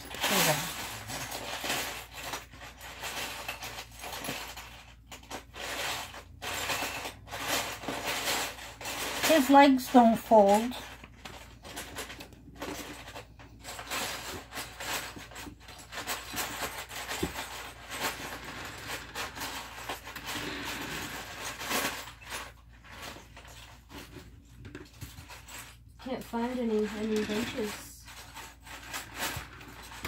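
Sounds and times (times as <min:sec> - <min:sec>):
plastic bricks rattling: 0:00.0 - 0:30.0.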